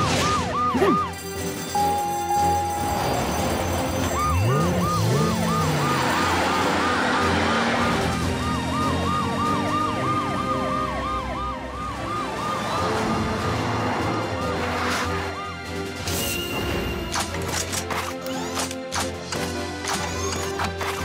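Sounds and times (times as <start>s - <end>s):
cartoon sirens yelping: 0.0s - 1.2s, 1.8s - 7.2s, 8.3s - 13.1s.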